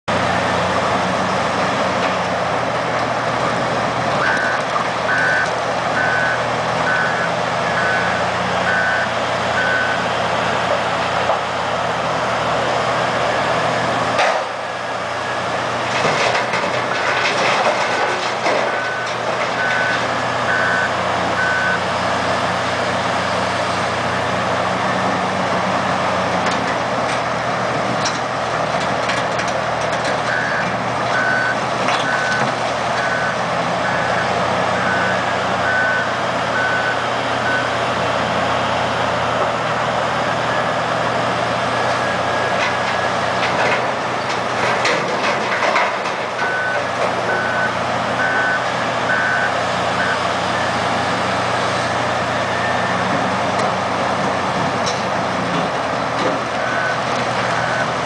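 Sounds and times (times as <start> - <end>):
diesel engine running hard: 0.0 - 58.0
backup alarm beeping: 4.2 - 10.0, 18.7 - 21.8, 46.4 - 50.7.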